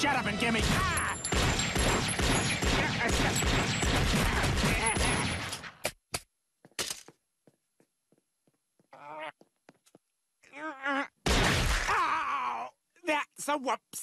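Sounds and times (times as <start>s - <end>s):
cartoon hits and crashes: 0.6s - 5.7s, 11.3s - 12.0s.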